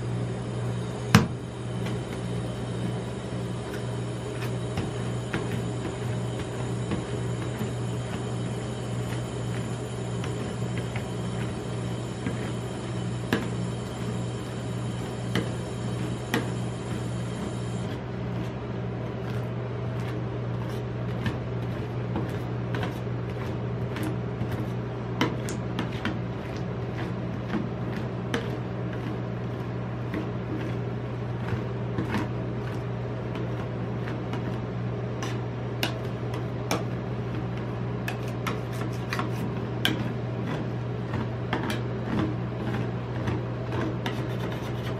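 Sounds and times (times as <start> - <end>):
refrigeration hum: 0.0 - 44.9
metal spatulas scraping and tapping: 38.1 - 42.3.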